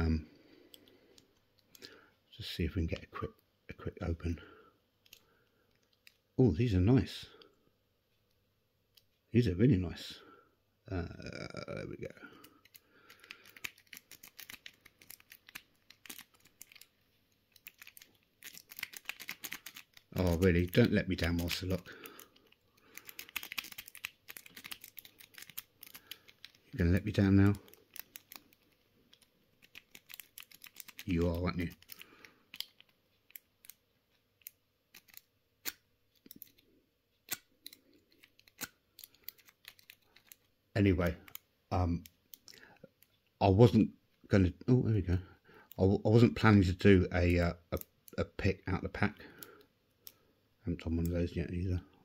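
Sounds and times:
plastic packaging rustling: 12.6 - 33.7, 38.1 - 41.4
lock picks and padlocks clicking: 29.1 - 31.1, 34.4 - 36.6.

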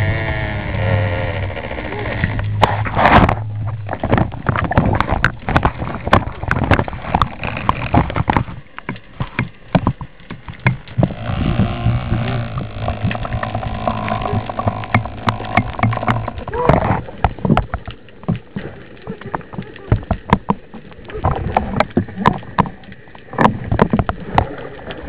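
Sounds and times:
low hum: 0.0 - 25.0
underwater clicks and knocks: 1.3 - 25.0.

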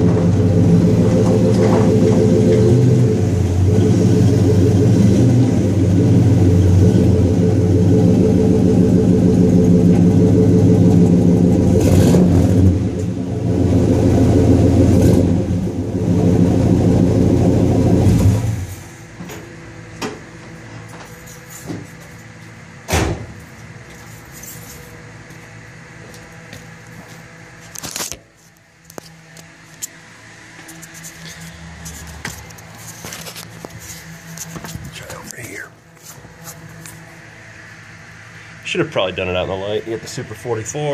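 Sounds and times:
car engine exhaust note: 0.0 - 22.0.

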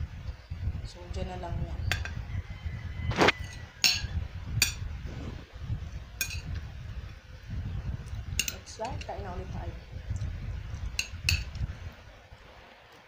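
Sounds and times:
low rumble: 4.0 - 8.5.

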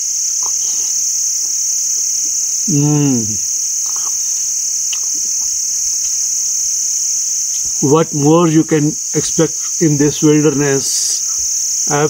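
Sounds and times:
insects chorus: 0.0 - 12.0
man humming mmm: 2.6 - 5.4.

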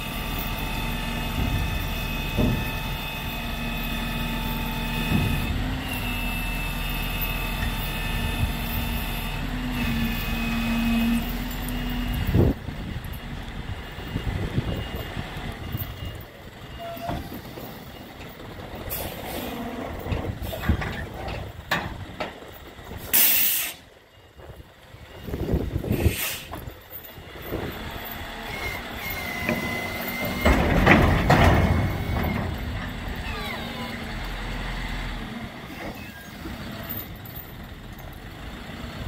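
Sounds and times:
diesel truck engine running: 0.0 - 39.0
brief high squeal: 16.7 - 17.3
loud air hissing: 23.1 - 23.8, 25.9 - 26.5
metal clanks: 29.4 - 33.6.

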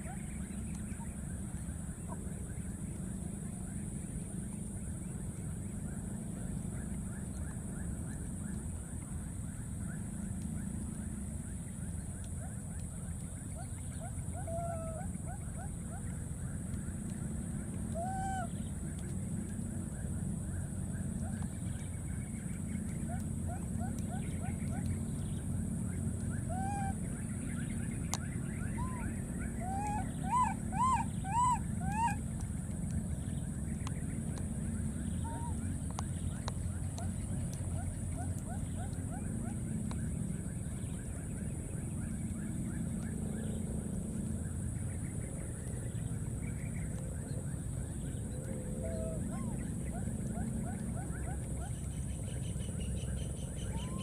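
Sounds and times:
steady low rumble: 0.0 - 54.0
loud arched monkey cries: 18.0 - 18.5, 26.5 - 27.0, 28.8 - 32.2
baby monkeys chirping: 26.4 - 27.0, 28.7 - 32.2, 53.6 - 54.0.

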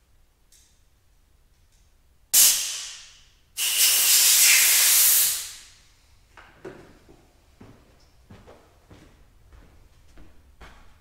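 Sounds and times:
hissing pressurised spray: 2.4 - 5.7.

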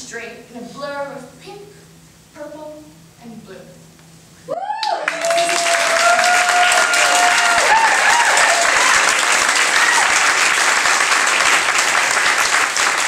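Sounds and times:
long held whoop: 4.5 - 10.3
audience applauding and cheering: 4.5 - 13.0
people shouting: 5.6 - 10.2.

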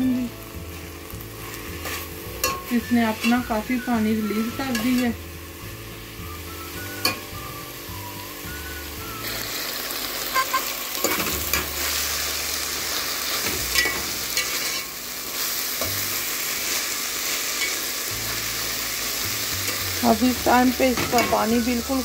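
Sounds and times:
vegetables sizzling in a pot: 0.0 - 22.0.

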